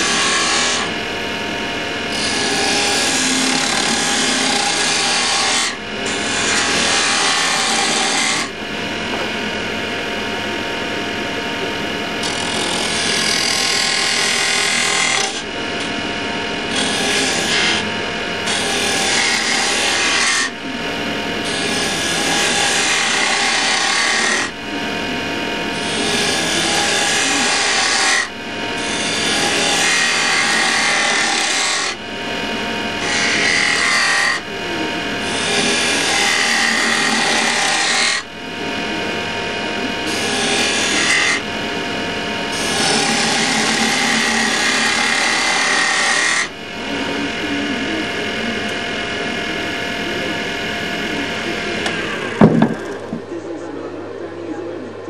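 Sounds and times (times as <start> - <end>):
abrasive strip rasping on wood: 0.0 - 0.9, 2.2 - 8.5, 12.2 - 15.5, 21.5 - 24.5, 25.8 - 32.0, 35.2 - 38.3, 42.5 - 46.5
wood lathe humming: 0.0 - 54.2
sharp knock: 52.4 - 52.9.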